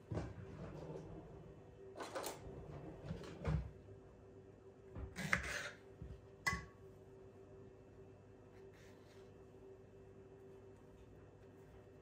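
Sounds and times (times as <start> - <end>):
knife cutting on wooden board: 5.2 - 5.8.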